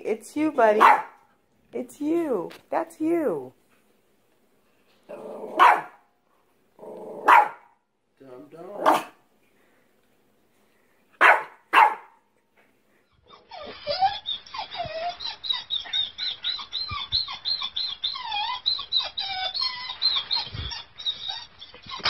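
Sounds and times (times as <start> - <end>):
small dog barking: 0.8 - 1.2, 5.6 - 6.0, 7.2 - 7.7, 8.8 - 9.2, 11.2 - 12.2
dog yelping and whining: 5.1 - 6.0, 13.2 - 22.0.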